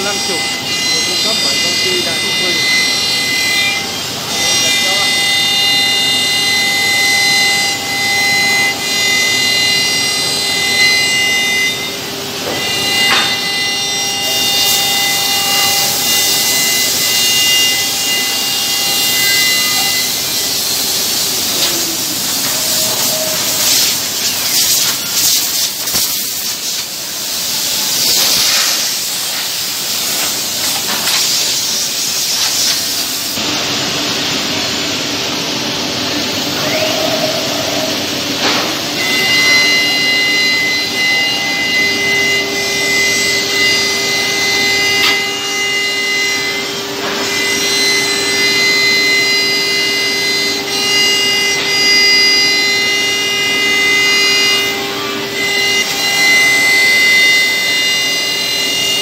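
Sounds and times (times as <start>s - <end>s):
router spindle high whine: 0.0s - 59.0s
loud hiss: 14.4s - 33.4s.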